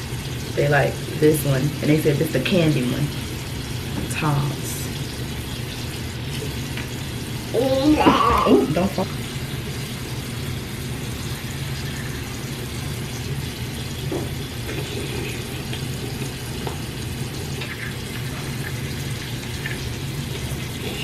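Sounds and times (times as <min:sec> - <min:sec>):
tap running into sink: 0:14.0 - 0:14.4.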